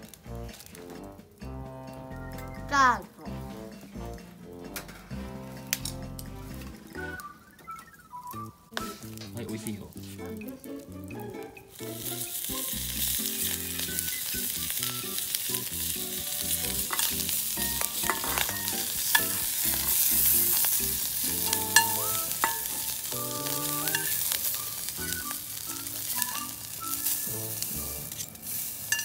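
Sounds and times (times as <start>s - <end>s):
sausages sizzling in a frying pan: 8.3s - 29.0s
metal tongs clicking: 16.6s - 24.5s, 26.0s - 27.3s.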